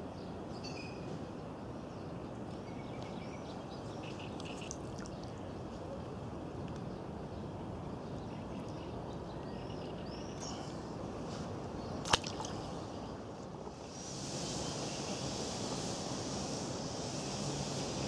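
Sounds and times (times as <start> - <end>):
faint bird chirps: 0.5 - 1.1
high hiss: 13.7 - 18.0.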